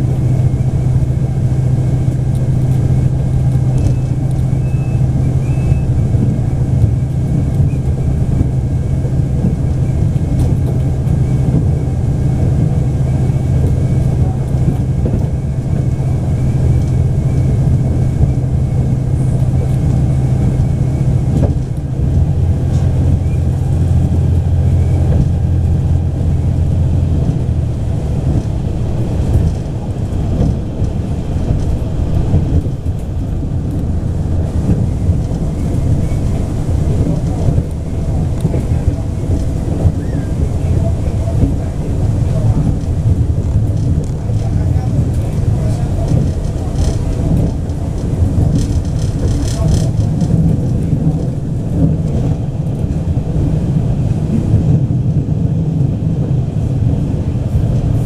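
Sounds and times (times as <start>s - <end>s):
diesel engine drone: 0.0s - 58.0s
train wheels on rails: 0.0s - 58.0s.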